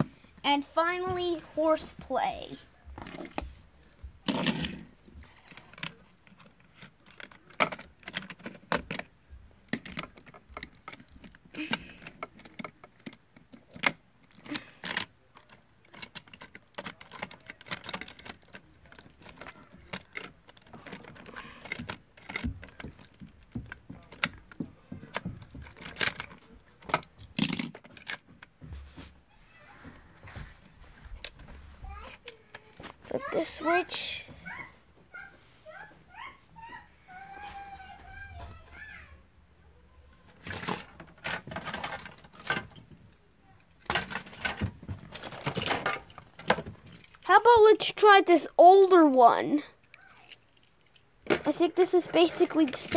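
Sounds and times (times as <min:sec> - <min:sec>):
plastic toy clicks and rattles: 0:04.3 - 0:28.3, 0:40.3 - 0:43.0, 0:43.6 - 0:52.9.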